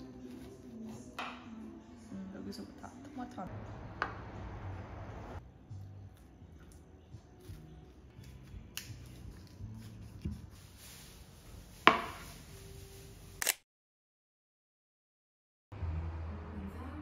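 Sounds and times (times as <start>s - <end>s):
kitchen handling sounds: 11.8s - 12.5s
plate set down on wooden table: 11.9s - 12.2s.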